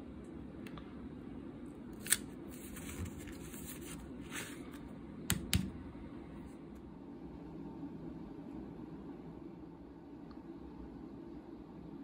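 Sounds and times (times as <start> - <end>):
paper rustling: 2.0 - 4.8.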